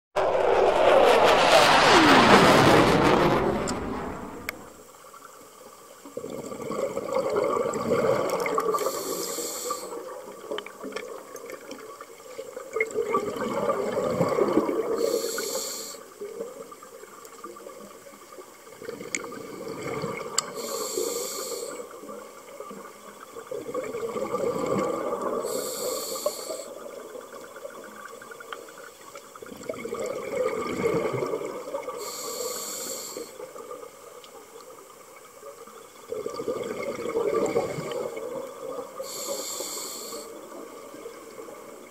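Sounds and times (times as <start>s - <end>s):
loud whooshing: 0.0s - 4.8s
hissing regulator inhale: 8.7s - 10.0s, 15.0s - 16.0s, 20.5s - 21.9s, 25.4s - 26.8s, 32.0s - 33.4s, 39.0s - 40.4s
diver exhaling bubbles: 29.6s - 32.0s, 36.1s - 38.3s.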